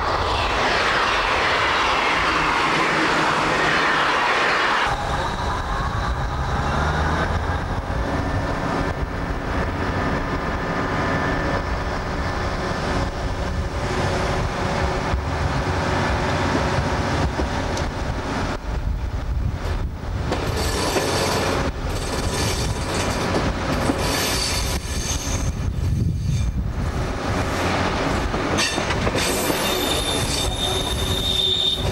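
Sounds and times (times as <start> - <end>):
rising whine: 0.0 - 14.5
train engine rumbling: 0.0 - 31.9
train wheels squealing and clicking: 20.3 - 26.6, 28.5 - 31.9.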